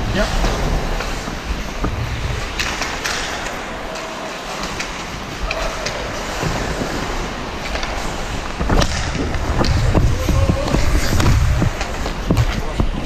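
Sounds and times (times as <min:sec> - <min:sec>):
hockey skates scraping: 0:00.0 - 0:13.0
stick and puck clacks: 0:00.4 - 0:13.0
steady low rumble: 0:06.4 - 0:13.0.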